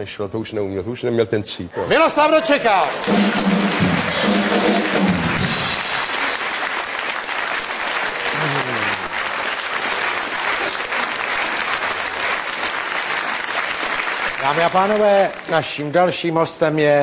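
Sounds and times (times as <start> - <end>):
audience applauding: 2.4 - 15.9.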